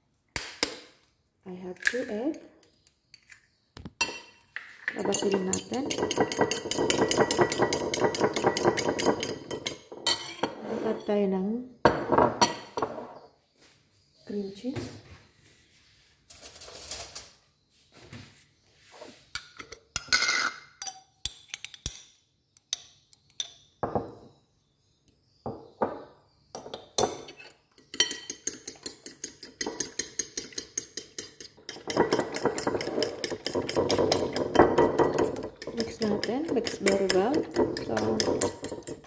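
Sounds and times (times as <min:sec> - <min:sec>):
fork clinking in ceramic bowl: 0:05.0 - 0:10.6, 0:27.2 - 0:39.0.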